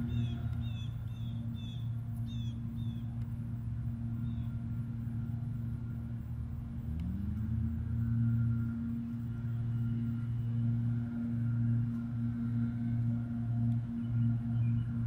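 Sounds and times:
bird chirps: 0.0s - 3.2s, 4.0s - 4.7s
engine tone rising in pitch: 0.0s - 15.0s
lawn mower engines droning: 0.0s - 15.0s.

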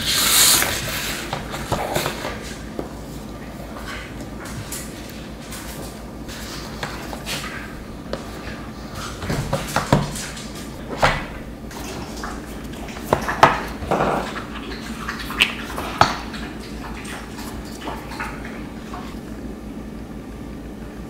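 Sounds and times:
paper rustling and sliding: 0.0s - 2.6s.

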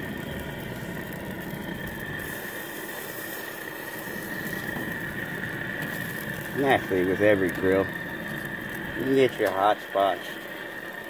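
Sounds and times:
gas grill flames hissing: 0.0s - 11.0s.

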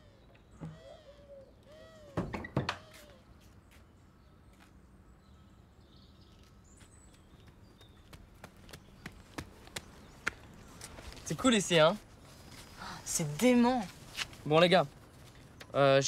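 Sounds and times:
door hinge squeaking: 2.1s - 2.8s.

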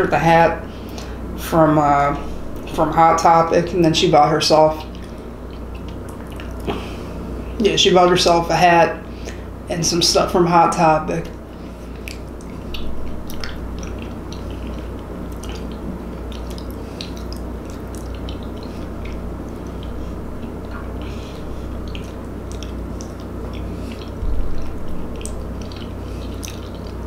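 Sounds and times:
steady low hum: 0.0s - 27.0s
chewing with wet mouth clicks: 4.7s - 6.9s, 11.2s - 27.0s.

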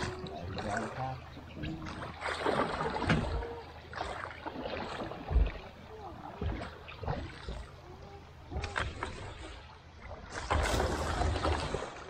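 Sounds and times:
water swishing with oar strokes: 0.0s - 12.0s
oars knocking on frame: 5.2s - 5.7s.

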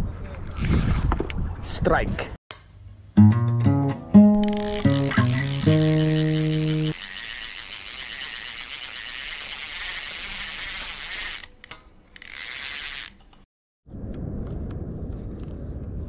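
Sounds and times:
fishing reel drag buzzing: 4.4s - 10.0s.

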